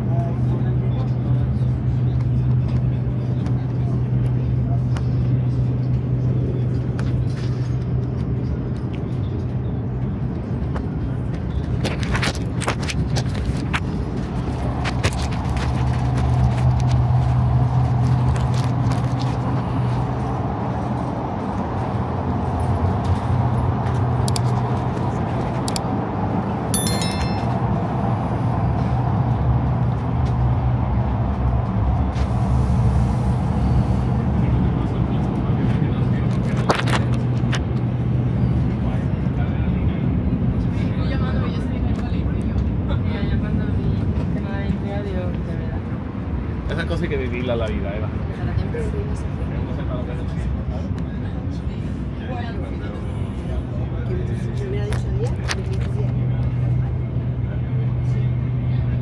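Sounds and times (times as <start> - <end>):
train carriage hum and rumble: 0.0 - 59.0
brief high jingle: 26.8 - 28.0.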